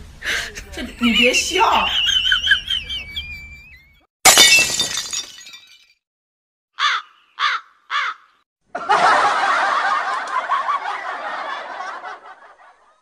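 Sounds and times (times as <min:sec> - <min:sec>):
people laughing together: 0:00.4 - 0:04.0, 0:08.7 - 0:13.0.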